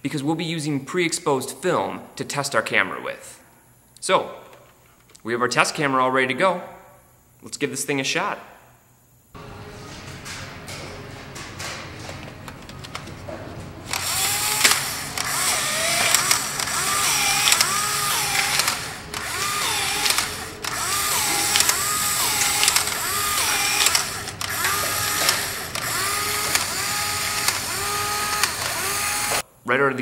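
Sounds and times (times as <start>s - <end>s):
camera motor whining: 13.8s - 29.4s
camera mechanism clicks: 13.9s - 29.4s.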